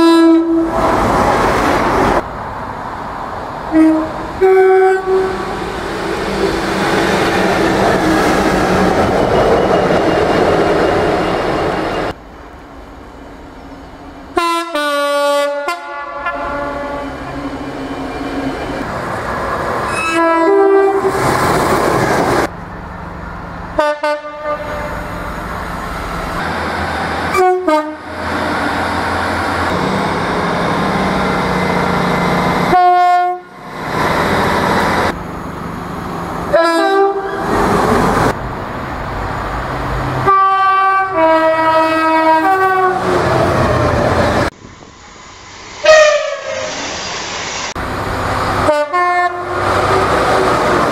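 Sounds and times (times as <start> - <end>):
diesel train two-tone horn: 0.0 - 0.8, 3.7 - 5.6, 14.3 - 17.3, 19.9 - 21.2, 23.8 - 25.3, 27.3 - 28.2, 32.7 - 33.6, 36.5 - 37.4, 40.2 - 43.2, 45.8 - 46.7, 48.6 - 49.7
train rumbling and rattling on track: 0.0 - 50.9.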